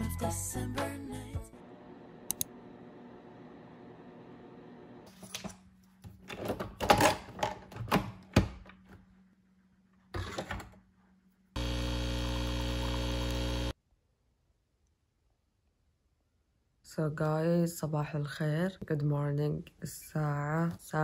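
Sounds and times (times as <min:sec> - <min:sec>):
coffee machine pump buzzing: 0:11.6 - 0:13.8.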